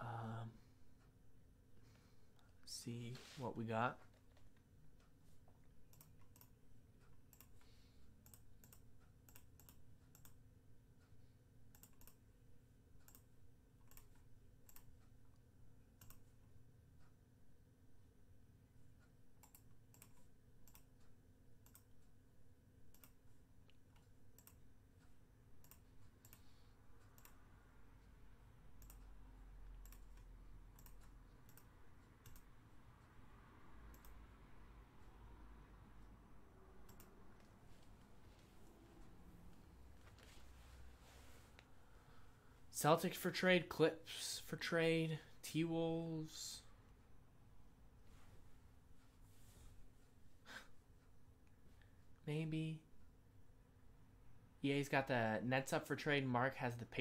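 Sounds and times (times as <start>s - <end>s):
mouse clicks: 33.9s - 34.2s.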